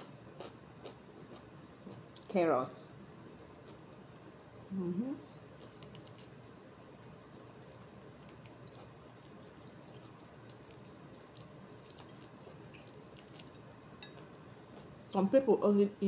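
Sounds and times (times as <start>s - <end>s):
crispy chicken crackling: 5.5s - 15.2s
quiet chewing: 5.5s - 15.2s.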